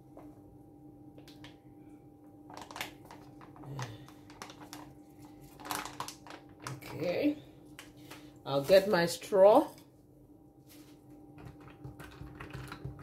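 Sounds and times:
faint steady hum: 0:00.0 - 0:13.0
plastic bag crinkling: 0:02.4 - 0:09.0.

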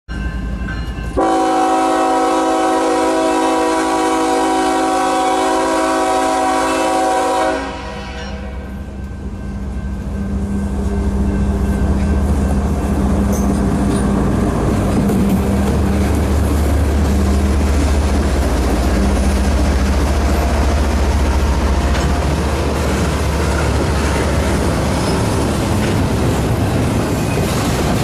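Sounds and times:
locomotive air horn: 0:01.2 - 0:08.8.

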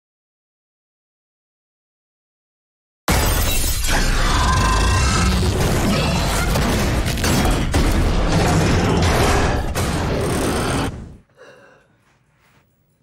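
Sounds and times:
metal and glass crunching: 0:03.1 - 0:09.9.

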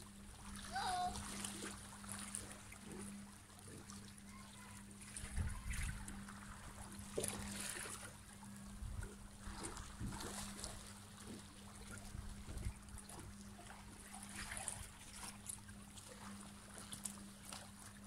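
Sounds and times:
small waves lapping on stones: 0:00.5 - 0:08.3.

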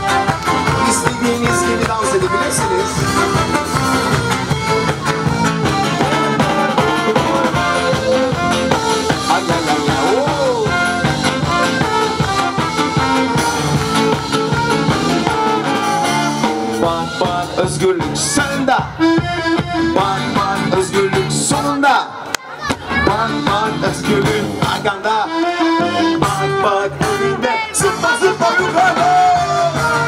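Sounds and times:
live band playing upbeat music: 0:00.0 - 0:30.0.

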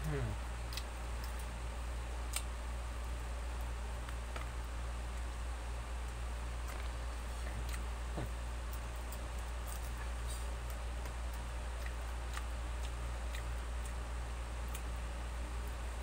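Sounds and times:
person chewing: 0:02.2 - 0:04.6, 0:06.6 - 0:07.9, 0:08.6 - 0:15.0.

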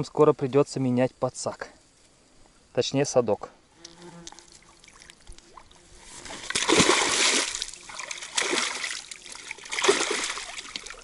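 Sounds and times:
fish splashing in water: 0:04.6 - 0:11.0.

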